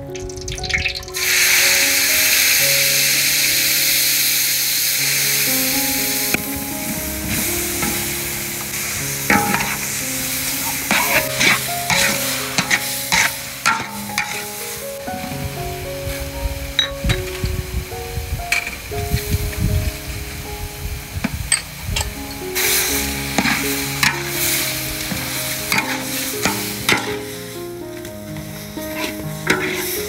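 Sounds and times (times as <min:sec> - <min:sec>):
meat sizzling in hot oil: 0:00.2 - 0:15.3, 0:22.6 - 0:27.6, 0:28.6 - 0:30.0
metal spatula scraping wok: 0:07.0 - 0:14.6, 0:21.5 - 0:27.4, 0:28.8 - 0:30.0.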